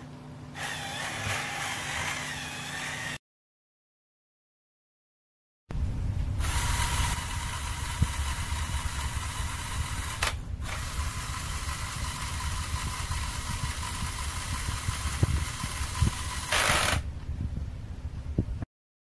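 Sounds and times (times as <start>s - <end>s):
toy motor whirring through gears: 0.6s - 3.2s, 6.4s - 17.1s.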